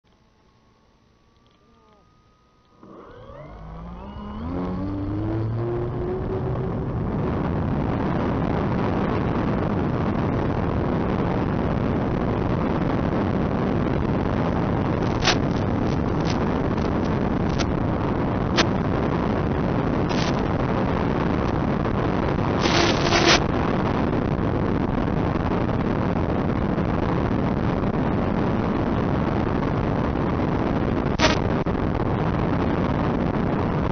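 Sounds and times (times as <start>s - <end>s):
model airplane motors whining: 0.1s - 7.9s, 14.9s - 17.8s, 19.8s - 21.6s, 22.4s - 23.5s.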